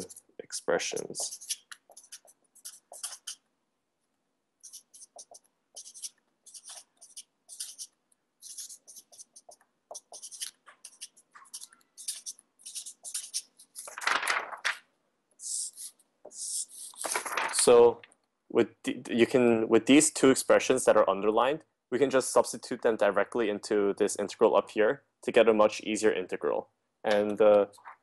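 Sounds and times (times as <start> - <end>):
pencil writing on paper: 0.9 - 3.5, 4.6 - 13.9
paper rustling: 4.7 - 14.9, 16.8 - 17.8.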